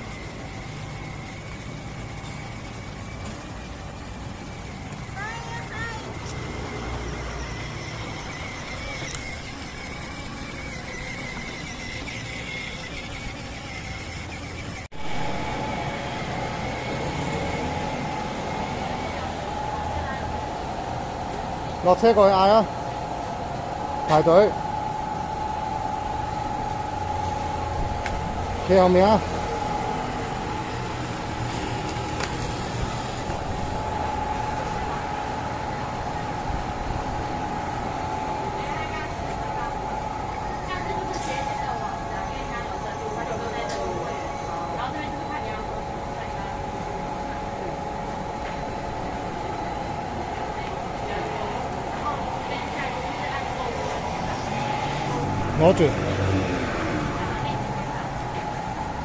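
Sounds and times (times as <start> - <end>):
plastic wheels rumbling on bricks: 0.0 - 15.6
toy motorcycle motor whine: 0.0 - 20.3
city street background noise: 0.0 - 59.0
constant hum: 0.0 - 59.0.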